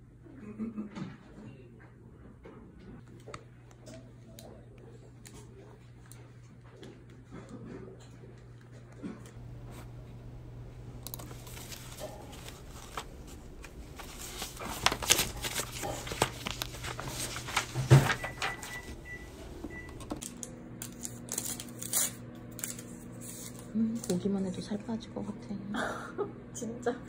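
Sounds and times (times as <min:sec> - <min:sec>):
crinkling clicks: 0:09.4 - 0:21.4
low hum: 0:09.4 - 0:22.9
paper rustling: 0:09.4 - 0:24.1.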